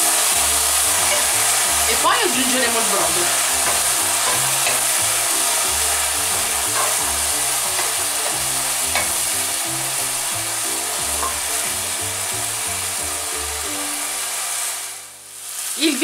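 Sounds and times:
food sizzling in a pot: 0.0 - 16.0
wooden spoon scraping a pot: 0.6 - 1.9.

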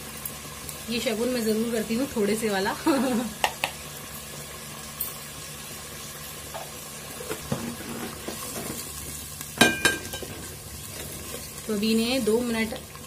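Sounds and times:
paste sizzling in hot oil: 0.0 - 13.0
wooden spoon scraping a pot: 7.4 - 8.9.

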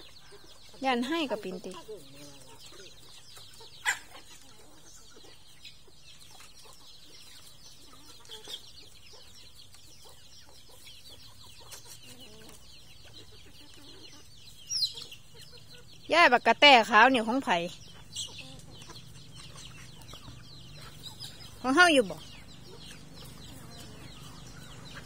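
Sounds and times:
chickens clucking: 0.0 - 25.0.

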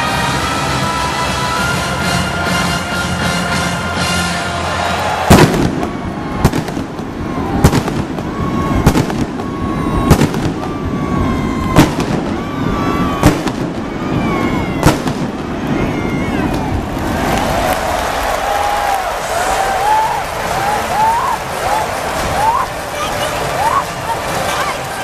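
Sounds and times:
firework whistling: 0.0 - 24.8
echoing firework bangs: 5.1 - 18.4.

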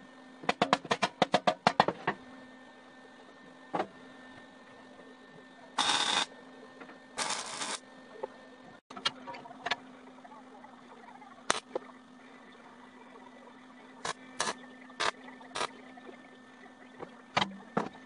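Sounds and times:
welder crackling: 5.8 - 6.3, 7.2 - 7.8, 11.5 - 11.8, 14.0 - 15.8.

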